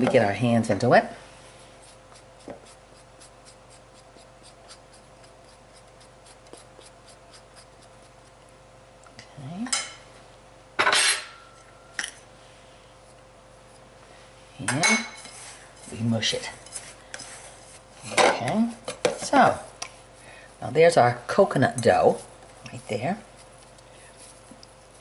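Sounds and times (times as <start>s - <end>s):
spatula stirring dough: 1.2s - 8.6s, 15.2s - 25.0s.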